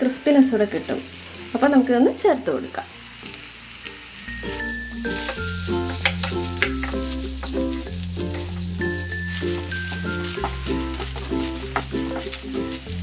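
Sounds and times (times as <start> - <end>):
food sizzling in frying pan: 0.0 - 13.0
background music with bass line: 4.3 - 13.0
wooden spatula stirring: 5.1 - 13.0.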